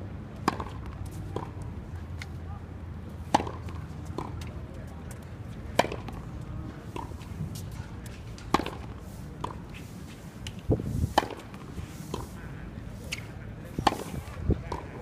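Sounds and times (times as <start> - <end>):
tennis ball racquet hits: 3.3 - 4.5, 5.7 - 6.3, 6.9 - 12.4, 13.0 - 15.0.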